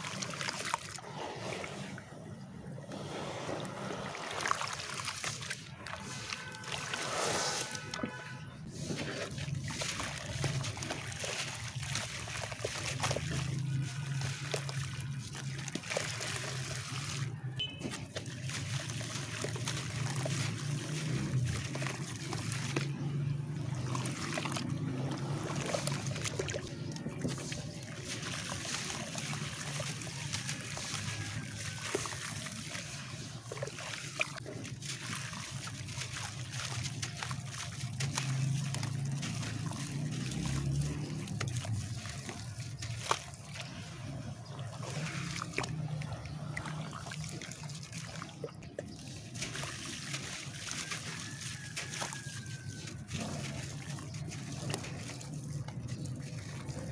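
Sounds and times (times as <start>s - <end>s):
water splashing and sloshing: 0.0s - 56.9s.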